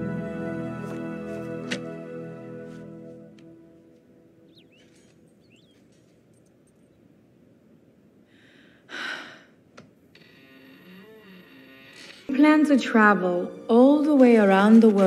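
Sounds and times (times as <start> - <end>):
woman sighing: 8.4 - 9.6.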